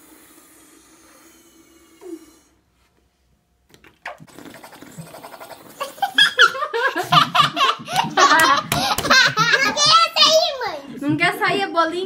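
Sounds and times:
children laughing: 5.4 - 11.0.

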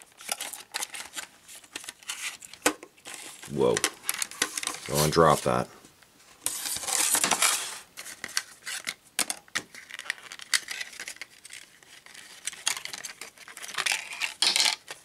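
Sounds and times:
plastic packaging tearing: 0.0 - 5.4, 9.6 - 15.0.

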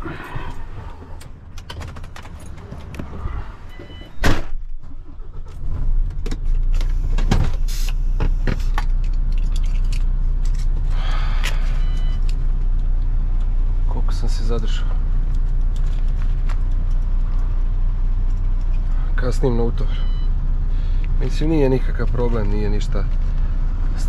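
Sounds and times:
diesel engine starting and idling: 0.0 - 24.0
truck door slamming: 4.0 - 4.8
short dashboard beeps: 11.7 - 12.3, 19.8 - 20.4.

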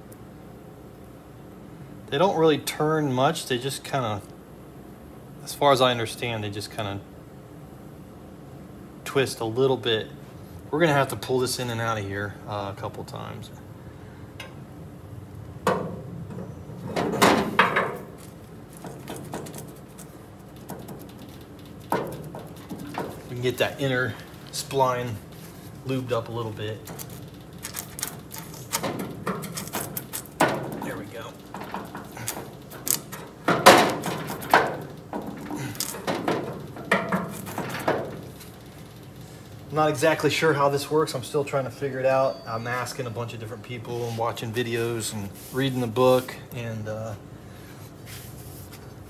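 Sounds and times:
metal clunks and scraping: 15.6 - 38.8.

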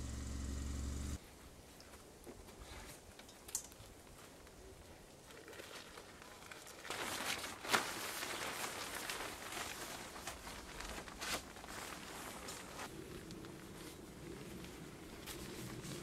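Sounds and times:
rain poncho rustling: 5.4 - 16.0.

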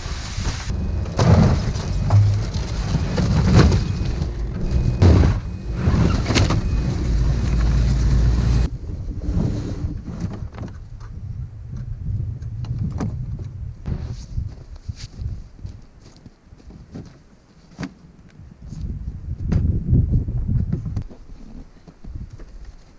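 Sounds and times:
steady low rumble: 0.1 - 10.0.

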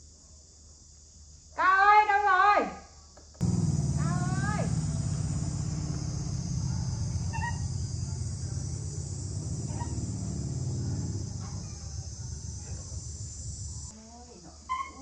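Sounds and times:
high insect drone: 0.0 - 15.0
low rumble: 3.4 - 13.9.

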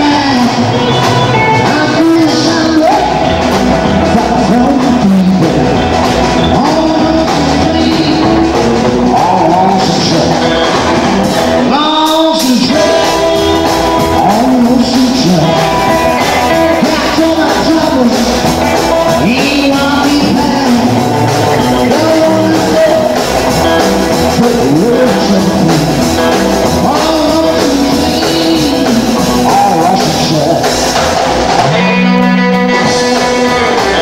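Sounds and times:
man singing: 0.0 - 31.0
electric guitar: 0.0 - 34.0
live rock and roll band: 0.0 - 34.0.

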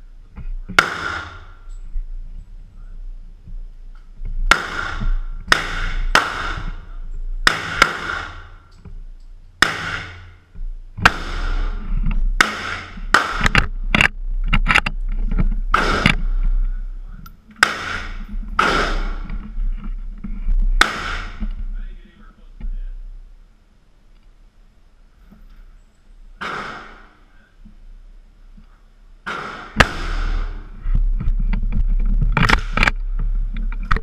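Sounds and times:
gunshots echoing indoors: 4.5 - 8.7, 9.6 - 10.4, 11.0 - 11.8, 12.4 - 13.6, 17.6 - 19.3.

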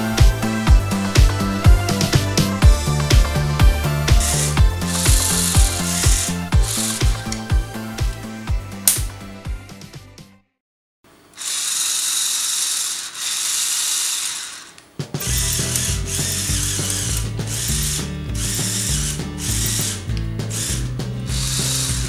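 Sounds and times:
electric motor whirring: 0.4 - 9.2, 11.4 - 22.0
plastic gears clicking: 4.3 - 7.5, 11.4 - 22.0.

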